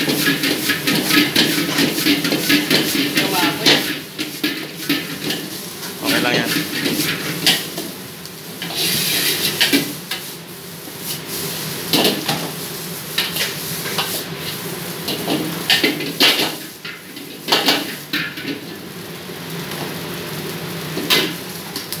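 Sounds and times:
frying sizzle: 0:00.0 - 0:22.0.

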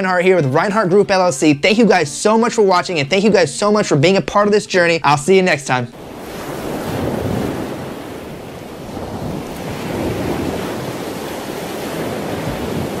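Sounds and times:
ocean surf: 0:04.6 - 0:13.0
wind: 0:05.9 - 0:13.0.

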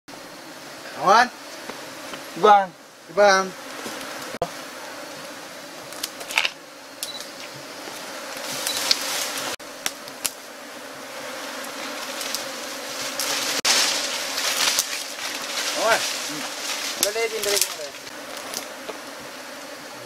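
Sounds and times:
insects buzzing: 0:00.1 - 0:20.0
brush rustling: 0:07.2 - 0:19.8.

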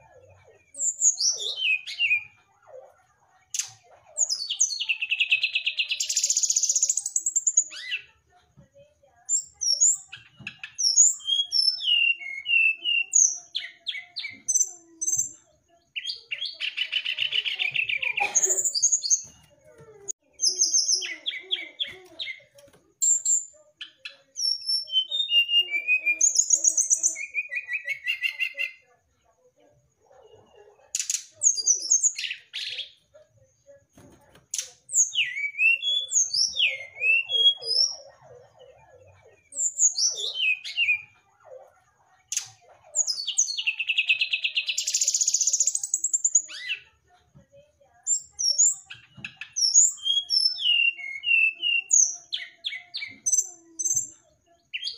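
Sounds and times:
bird singing whistles and trills: 0:10.7 - 0:15.3, 0:34.9 - 0:38.0, 0:48.1 - 0:54.1.

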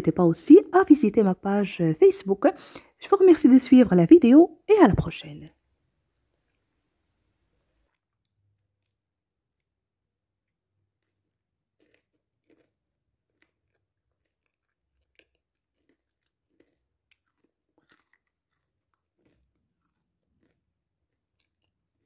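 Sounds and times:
crunching and chewing: 0:07.9 - 0:22.0.

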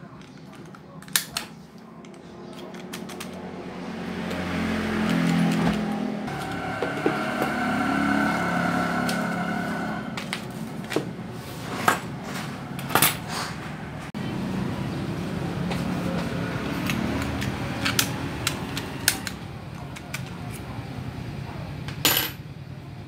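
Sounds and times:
steady hum: 0:06.2 - 0:11.4.

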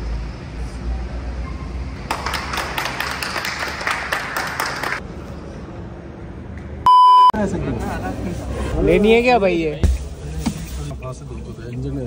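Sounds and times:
group applauding: 0:02.0 - 0:05.0.

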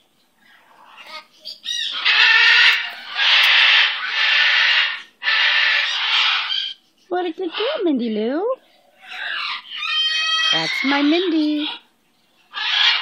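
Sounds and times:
cockatoo chirps: 0:00.3 - 0:07.9, 0:08.8 - 0:13.0
cockatoo harsh screeches: 0:00.8 - 0:06.8, 0:09.0 - 0:11.8, 0:12.5 - 0:13.0.

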